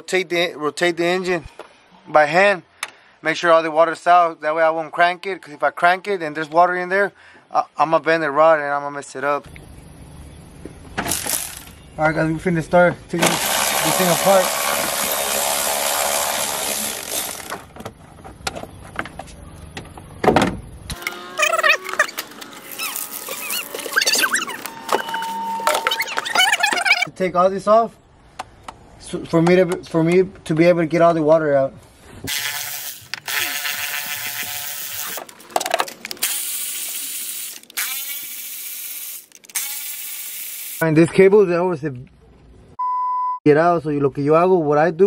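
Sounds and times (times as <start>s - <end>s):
parts clattering: 10.9s - 11.8s, 35.0s - 37.9s
electric ratchet running: 11.1s - 11.8s, 13.2s - 17.7s, 20.9s - 25.1s, 32.3s - 35.5s, 36.1s - 40.8s.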